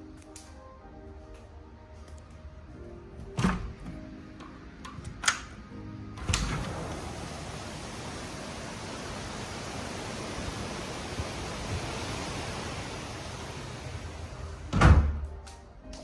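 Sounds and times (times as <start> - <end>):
rushing outdoor ambience: 0.0 - 15.0
glass door shutting thud: 3.4 - 4.0, 6.2 - 7.3, 14.2 - 15.3.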